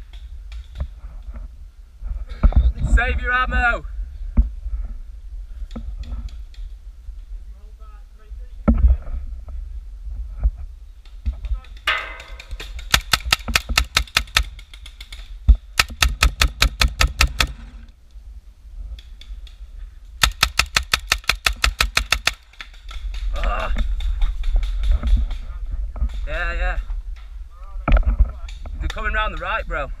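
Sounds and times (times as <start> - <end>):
paintball markers firing: 12.4 - 17.6, 20.2 - 24.9.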